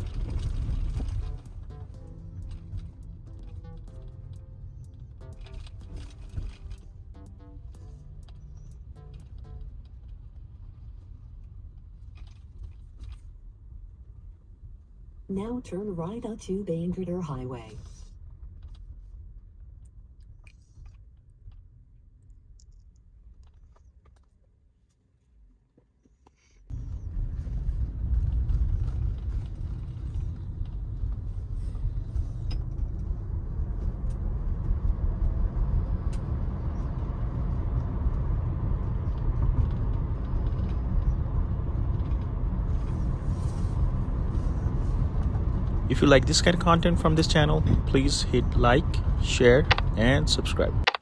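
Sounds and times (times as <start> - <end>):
wind noise: 0.0 - 1.8, 26.7 - 50.8
low cabin hum: 0.0 - 51.0
road and tyre rumble: 0.0 - 51.0.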